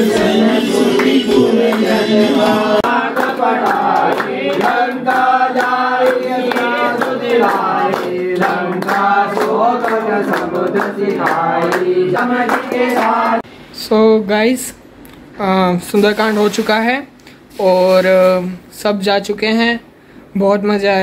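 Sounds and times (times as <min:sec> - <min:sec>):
group singing a hymn in unison: 0:00.0 - 0:13.5
rhythmic hand clapping: 0:00.0 - 0:13.5.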